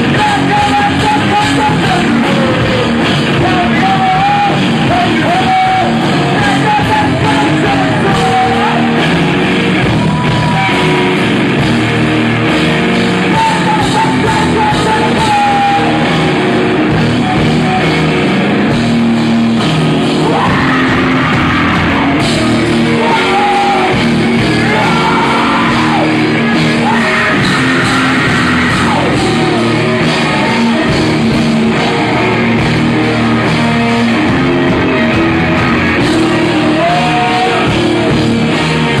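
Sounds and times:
person singing: 0:00.0 - 0:11.3, 0:12.9 - 0:18.6, 0:20.0 - 0:39.0
rock band playing live: 0:00.0 - 0:39.0.

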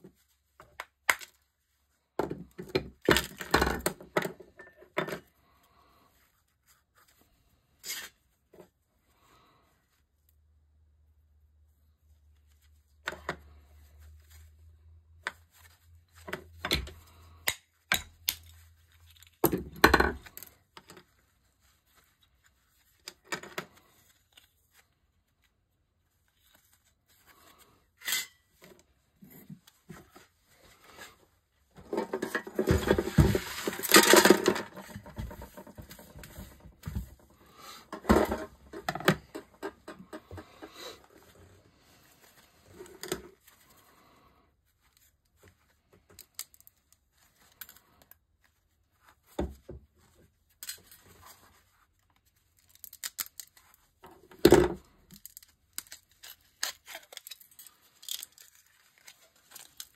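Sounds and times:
thin metal sheet crinkling: 0:31.8 - 0:40.9.

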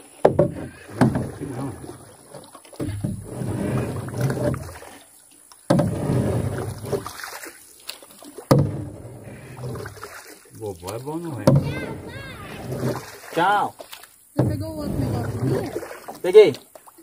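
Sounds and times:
boat knocking on water: 0:00.0 - 0:04.8, 0:05.7 - 0:07.2, 0:08.4 - 0:16.6
rustling scraping noise: 0:02.8 - 0:04.8, 0:05.8 - 0:07.1, 0:11.5 - 0:13.2.

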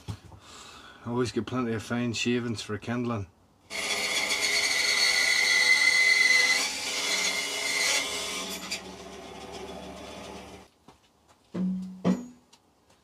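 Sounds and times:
bandsaw cutting wood: 0:03.7 - 0:10.7.

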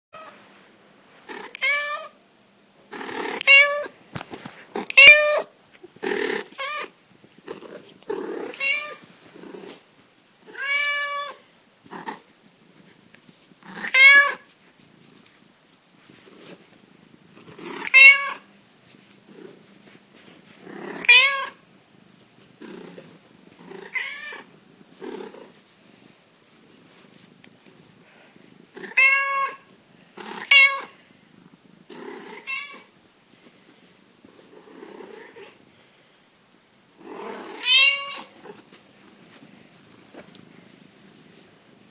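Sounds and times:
low rough cat sounds: 0:04.6 - 0:09.8, 0:10.4 - 0:15.3, 0:16.2 - 0:18.5, 0:20.4 - 0:33.0, 0:34.2 - 0:35.8, 0:37.0 - 0:41.9
cat meowing: 0:04.8 - 0:05.5, 0:08.4 - 0:09.0, 0:13.8 - 0:14.5, 0:17.8 - 0:18.5, 0:21.0 - 0:21.6, 0:23.8 - 0:24.5, 0:28.8 - 0:29.7, 0:30.4 - 0:31.0, 0:37.4 - 0:38.4.

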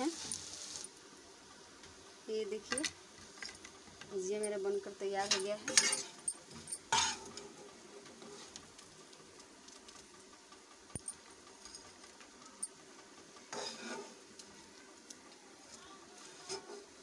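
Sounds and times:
fried slices clattering onto pile: 0:06.9 - 0:07.4.

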